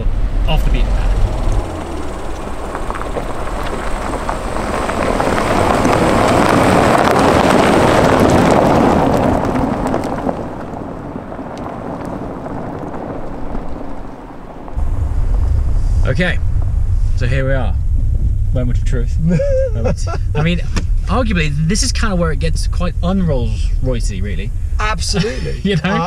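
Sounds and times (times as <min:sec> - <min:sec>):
tyres crunching over gravel: 0:00.8 - 0:14.8.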